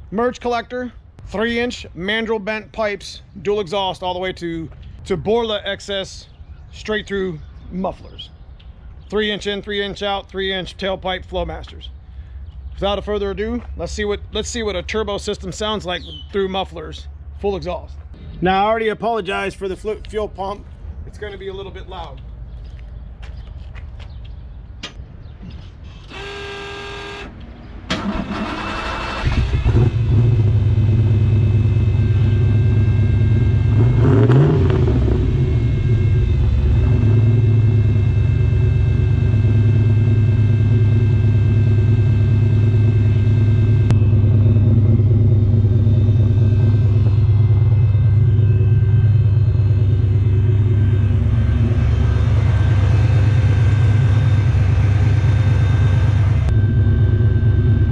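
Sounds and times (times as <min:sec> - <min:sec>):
electric fuel pump whining: 0:25.9 - 0:27.3, 0:27.9 - 0:57.9
car engine revving and idling: 0:29.2 - 0:57.9.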